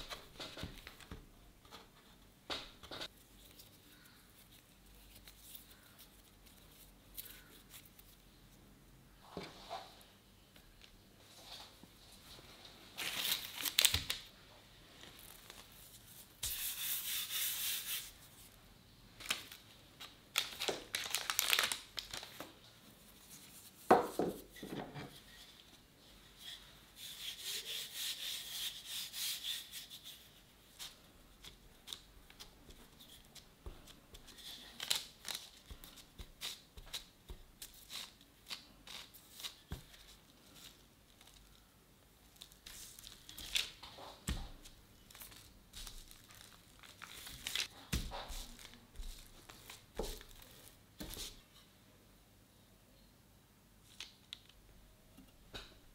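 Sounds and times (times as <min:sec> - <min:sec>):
parchment paper crinkling: 0:03.0 - 0:08.2, 0:13.0 - 0:14.3, 0:15.0 - 0:17.8, 0:19.2 - 0:24.0, 0:30.0 - 0:51.4.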